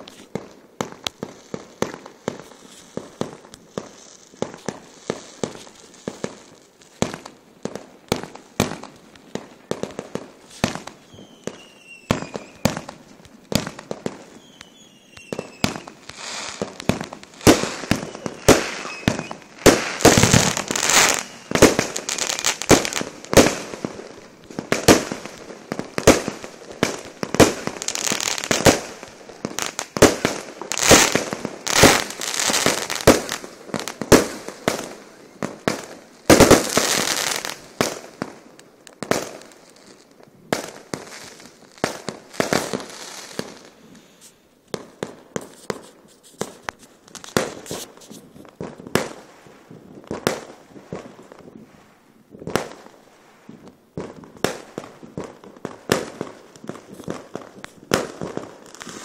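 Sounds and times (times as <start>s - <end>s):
firework crackling: 0.0s - 59.0s
fireworks bursting: 0.0s - 59.0s
falling firework whistles: 10.4s - 23.9s.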